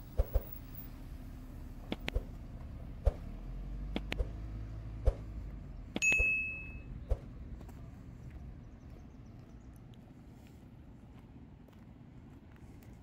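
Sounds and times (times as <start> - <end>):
footsteps on a path: 7.1 - 13.0.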